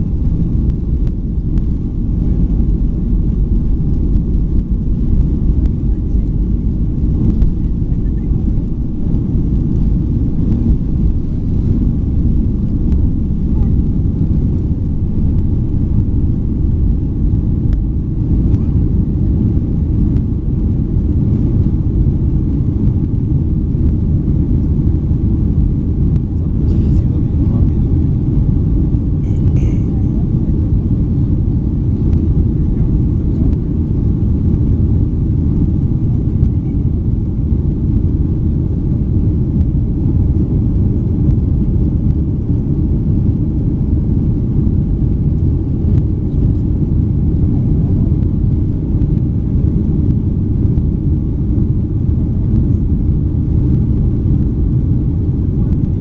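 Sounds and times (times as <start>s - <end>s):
airplane cabin engine rumble: 0.0s - 56.0s.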